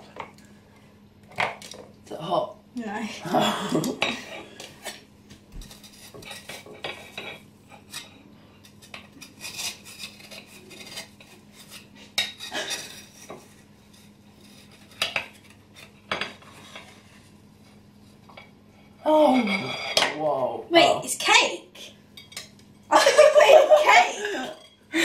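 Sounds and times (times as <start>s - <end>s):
spatula scraping a baking tin: 5.6s - 18.2s.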